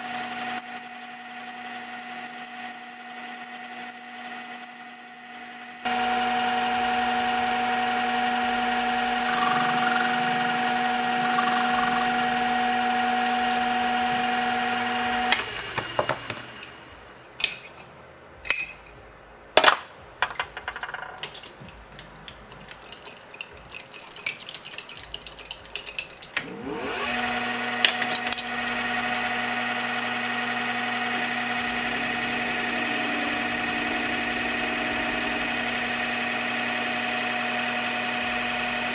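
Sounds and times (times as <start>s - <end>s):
metal lathe whining: 0.0s - 16.9s, 26.4s - 38.9s
metal clinks and knocks: 17.2s - 19.0s, 20.2s - 26.4s.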